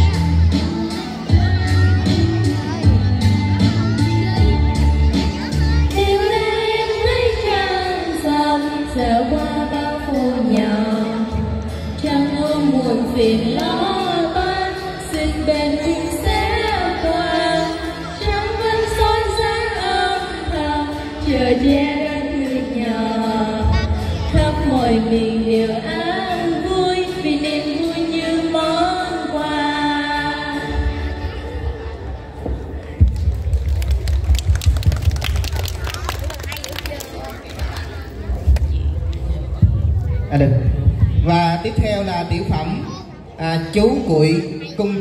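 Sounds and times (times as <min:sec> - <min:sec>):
girls singing into microphones: 0:00.0 - 0:31.9
recorded music backing track: 0:00.0 - 0:43.0.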